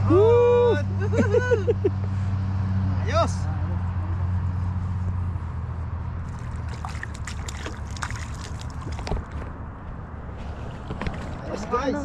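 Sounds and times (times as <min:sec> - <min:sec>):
water sloshing and splashing: 0:06.2 - 0:09.6, 0:10.3 - 0:11.7.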